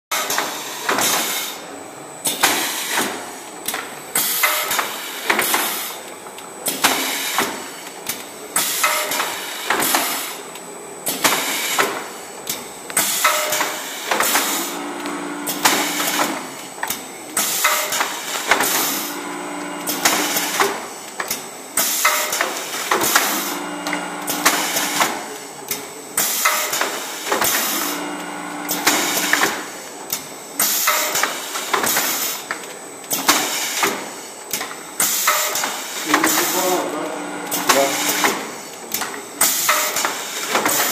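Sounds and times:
machine clacking and knocking: 0:15.6 - 0:16.5, 0:19.9 - 0:21.3, 0:37.5 - 0:40.9.

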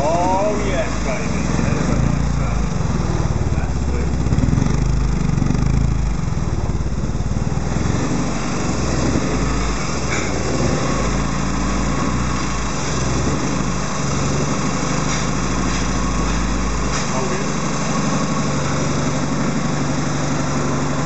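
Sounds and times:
car engine revving unevenly: 0:00.0 - 0:21.0.

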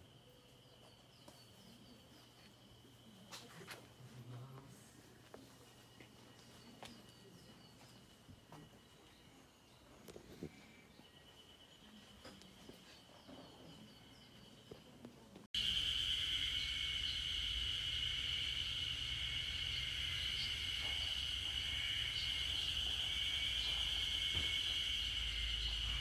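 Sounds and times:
high-pitched insect chorus: 0:15.6 - 0:26.0.

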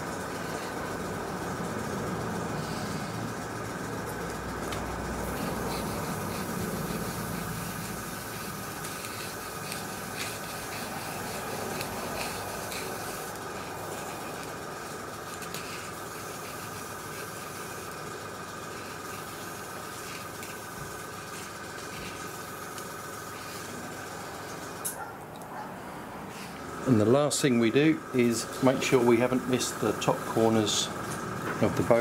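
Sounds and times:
airbrush hissing: 0:00.0 - 0:24.8, 0:27.8 - 0:31.3
compressor whine: 0:00.0 - 0:32.0.

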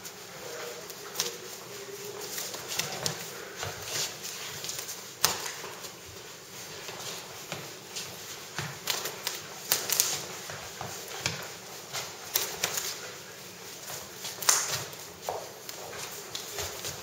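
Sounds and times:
hands and forearms slapping: 0:14.3 - 0:15.0.

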